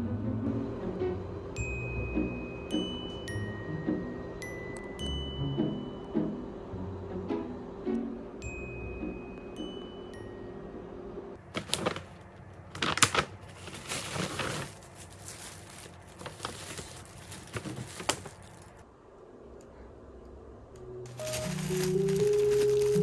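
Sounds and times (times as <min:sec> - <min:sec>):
soft music: 0:00.0 - 0:11.4, 0:20.8 - 0:23.0
shopping bags rustling: 0:11.4 - 0:18.8, 0:21.1 - 0:23.0.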